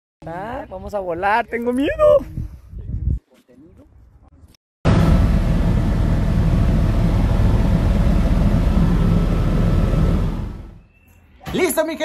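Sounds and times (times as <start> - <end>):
helicopter engine and rotor: 4.9 - 10.8.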